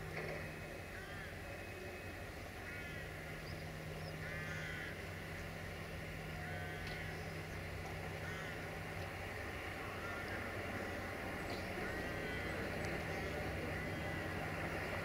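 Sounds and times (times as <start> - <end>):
locomotive engine humming: 0.0 - 15.0
crows cawing: 0.9 - 1.4, 2.6 - 3.4, 4.2 - 5.1, 6.4 - 7.2, 8.1 - 8.8, 9.8 - 11.1, 11.7 - 12.8.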